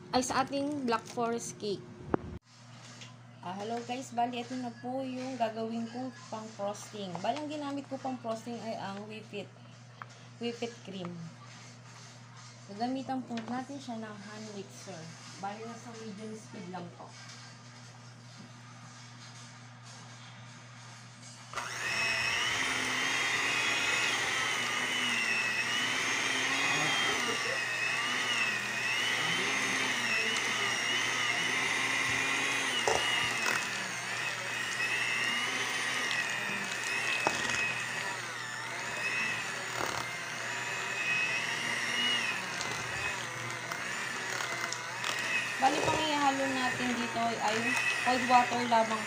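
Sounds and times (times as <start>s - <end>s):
hand mixer whining: 21.5s - 49.0s
beaters whipping cream in bowl: 21.6s - 49.0s.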